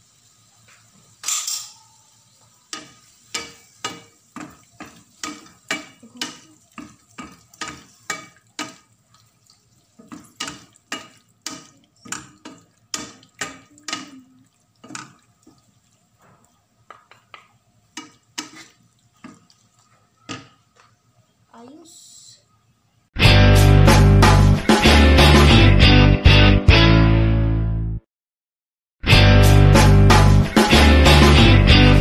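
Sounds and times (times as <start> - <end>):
spatula scraping frying pan: 1.0 - 21.0.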